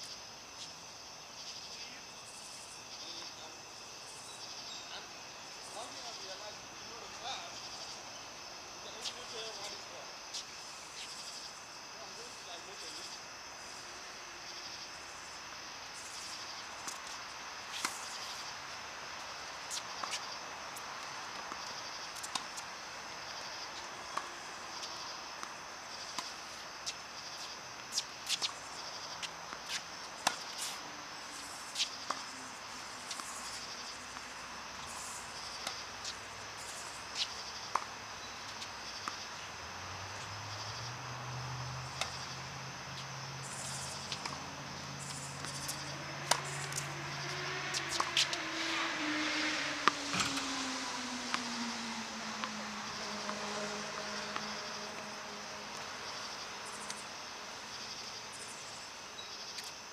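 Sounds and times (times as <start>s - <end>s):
insects chirping: 0.0s - 59.9s
vehicle engine passing: 30.2s - 57.8s.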